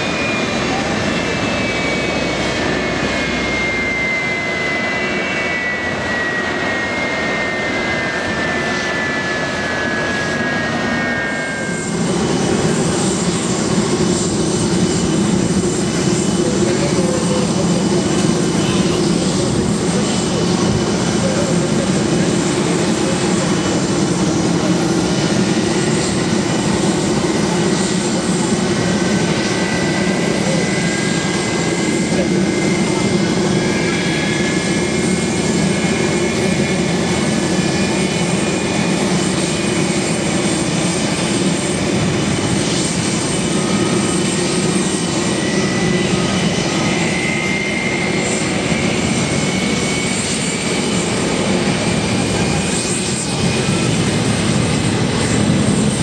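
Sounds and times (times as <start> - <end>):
deep steady jet engine noise: 0.0 - 56.0
jet engines whining: 0.0 - 56.0.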